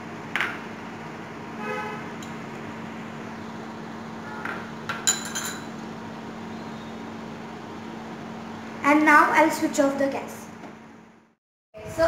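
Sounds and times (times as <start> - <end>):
metal spoon clinking on bowl: 5.0 - 5.7.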